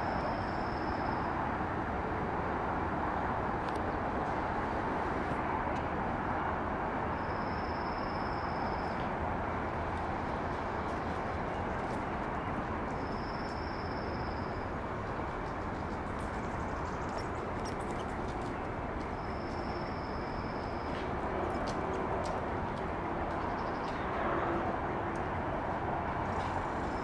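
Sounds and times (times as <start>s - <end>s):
outdoor background noise: 0.0s - 27.0s.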